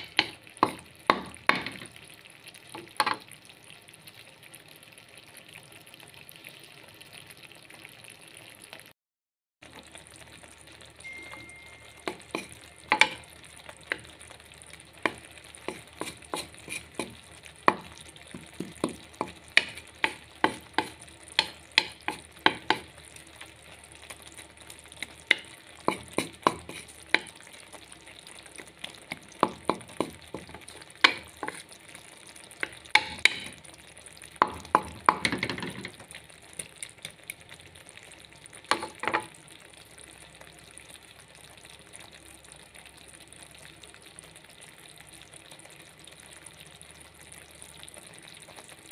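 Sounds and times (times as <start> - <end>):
greens sizzling in oil: 0.0 - 8.9, 9.6 - 48.9
wooden spatula scraping pan: 12.0 - 13.2, 15.0 - 22.9, 25.3 - 27.3, 29.1 - 31.8, 32.6 - 33.6, 38.7 - 39.2.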